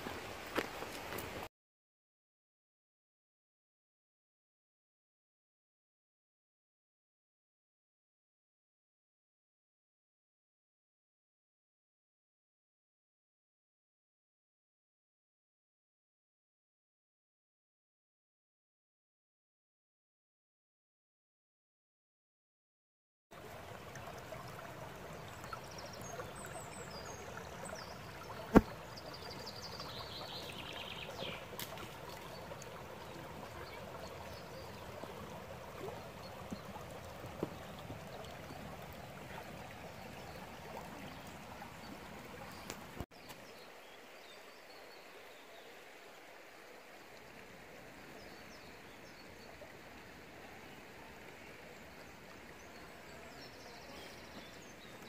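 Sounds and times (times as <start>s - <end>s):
river babbling over stones: 0.0s - 1.5s, 23.4s - 55.0s.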